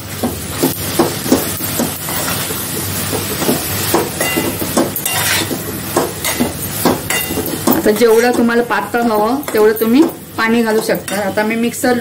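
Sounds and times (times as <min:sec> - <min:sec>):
food sizzling in hot oil: 0:00.0 - 0:12.0
spoon scraping a metal pan: 0:03.4 - 0:10.0, 0:10.8 - 0:11.5.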